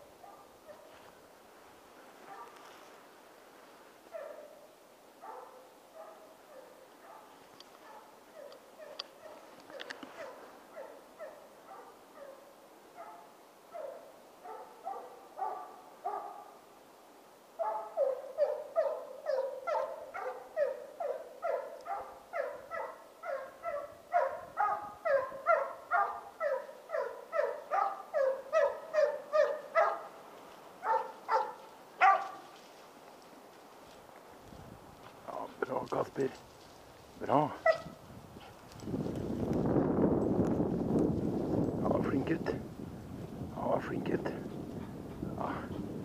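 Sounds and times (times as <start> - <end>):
hound baying: 4.1 - 16.6, 17.6 - 30.2, 30.8 - 32.6, 37.4 - 38.6.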